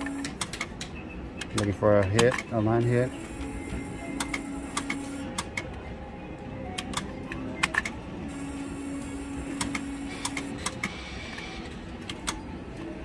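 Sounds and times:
sharp mechanical clicks: 0:00.0 - 0:02.5, 0:09.5 - 0:12.4
casino background music: 0:00.0 - 0:13.0
slot machine electronic tone: 0:02.8 - 0:11.6.

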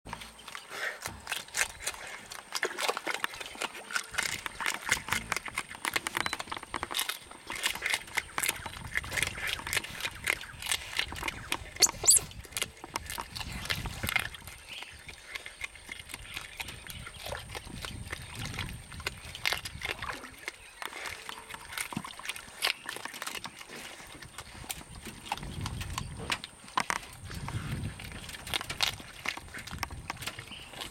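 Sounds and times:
otters crunching fish: 0:00.1 - 0:30.9
short high-pitched sound: 0:11.8 - 0:12.3.

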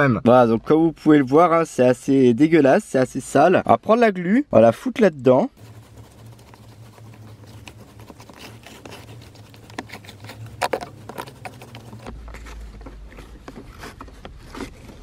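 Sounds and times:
low steady hum: 0:05.5 - 0:15.0
gel clicks and scrapes on plastic: 0:05.6 - 0:15.0.

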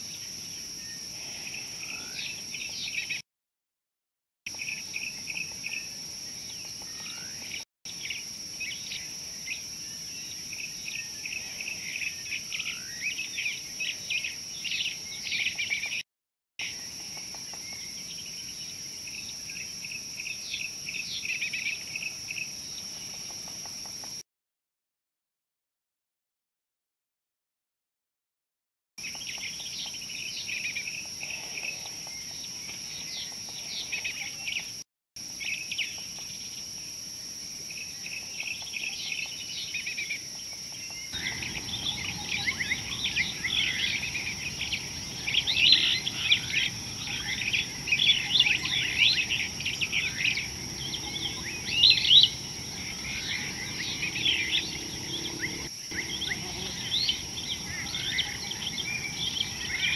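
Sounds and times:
birds chirping and twittering: 0:04.5 - 0:16.0, 0:29.0 - 0:34.8, 0:37.9 - 0:59.9
high-pitched insect drone: 0:41.2 - 0:59.9.

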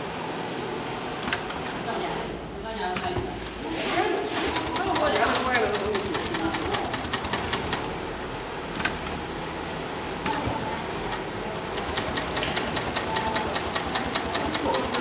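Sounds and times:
sewing machine stitching: 0:04.3 - 0:08.0, 0:10.2 - 0:15.0.

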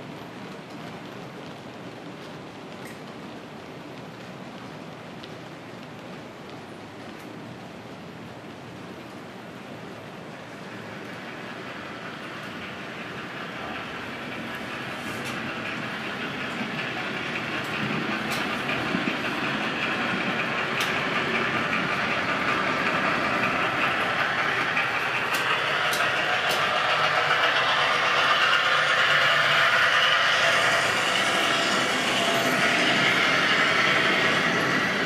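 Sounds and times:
model train wheels and motor whirring: 0:10.4 - 0:35.0
wheels clicking over rail joints: 0:10.7 - 0:35.0.

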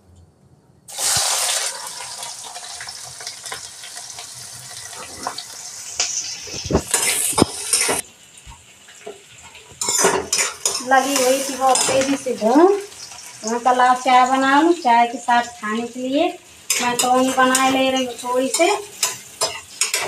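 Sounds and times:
onions sizzling in hot oil: 0:00.9 - 0:20.0
metal spatula scraping a pan: 0:04.9 - 0:08.0, 0:09.8 - 0:12.4, 0:16.6 - 0:20.0.

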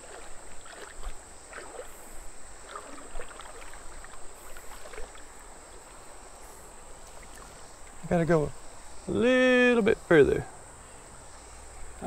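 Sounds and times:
feet sloshing through water: 0:00.0 - 0:08.0
high insect drone: 0:00.0 - 0:12.0.

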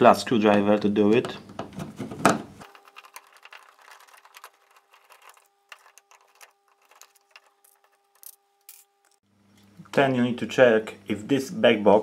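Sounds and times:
screwdriver clicks and scrapes: 0:02.6 - 0:09.2.

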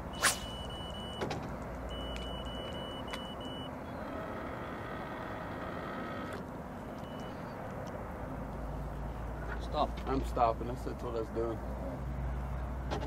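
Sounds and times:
thin high tone: 0:00.0 - 0:01.2.

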